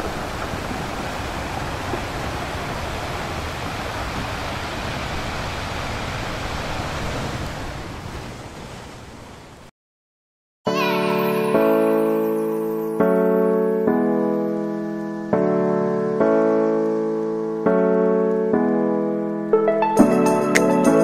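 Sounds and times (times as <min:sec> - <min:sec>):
ocean surf on beach: 0:00.0 - 0:09.7.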